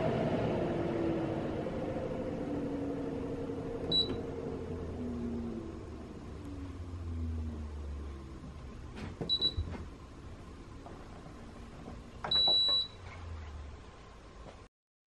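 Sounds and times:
low hum: 0:00.0 - 0:14.6
control panel beeping: 0:03.9 - 0:04.2, 0:12.3 - 0:13.0.

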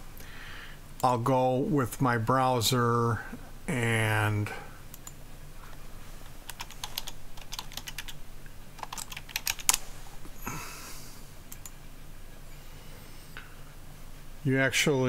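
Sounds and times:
typing on computer keyboard: 0:06.5 - 0:08.2, 0:08.8 - 0:09.8.

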